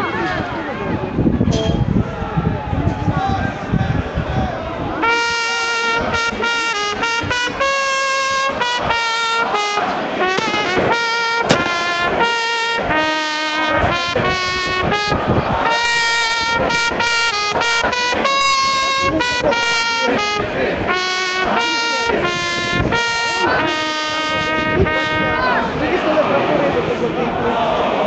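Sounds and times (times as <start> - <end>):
trumpet held notes: 5.0 - 25.7.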